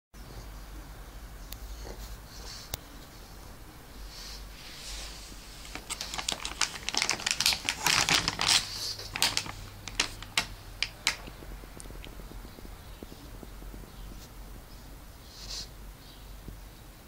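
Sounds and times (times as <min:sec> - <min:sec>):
plastic snack bag crinkling: 0:05.6 - 0:11.4.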